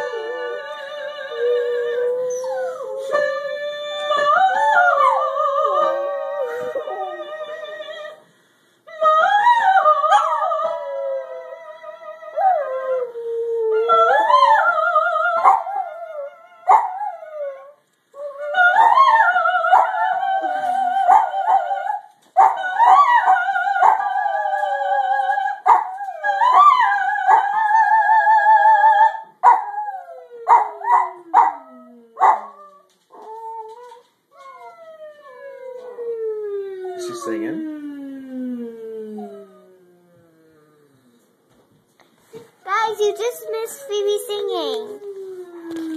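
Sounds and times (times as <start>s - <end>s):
woman singing vocal warm-up: 0.0s - 8.2s, 18.2s - 29.3s
dog howling: 9.0s - 41.2s.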